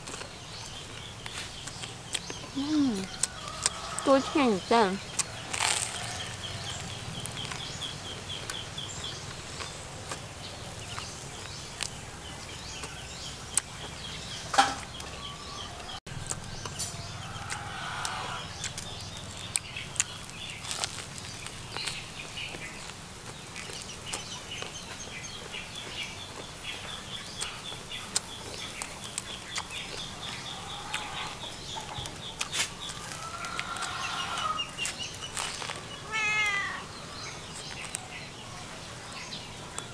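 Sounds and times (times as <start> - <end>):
bread chewing and crunching: 0.0 - 4.1, 5.0 - 14.1, 16.1 - 36.8, 37.5 - 38.1
bird calls: 23.6 - 39.9.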